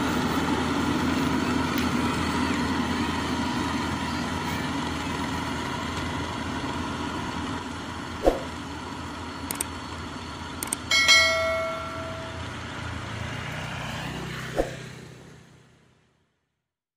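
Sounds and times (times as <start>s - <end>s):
diesel engine running: 0.0s - 16.0s
sharp clicks: 9.4s - 9.8s, 10.6s - 10.9s
bright bell chime: 10.9s - 12.7s.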